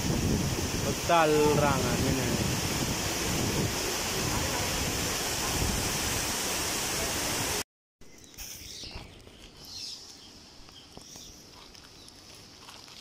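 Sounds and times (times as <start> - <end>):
turbulent water rushing: 0.0 - 7.6.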